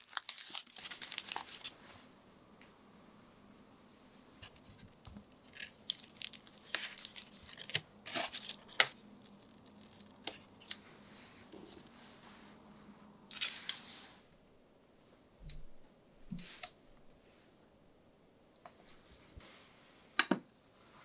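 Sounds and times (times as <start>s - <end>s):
aluminium foil crinkling: 0.0s - 1.8s, 4.5s - 10.8s.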